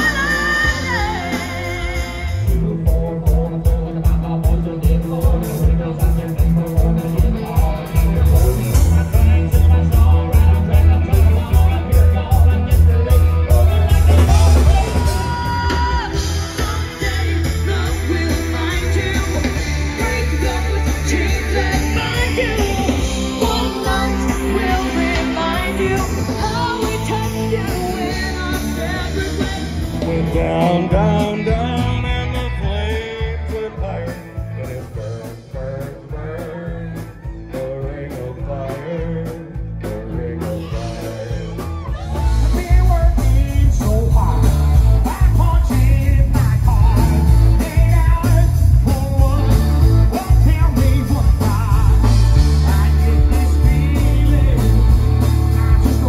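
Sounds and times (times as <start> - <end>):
woman singing: 0.0 - 2.4, 14.2 - 29.8
live rock band: 0.0 - 56.0
man singing: 0.0 - 56.0.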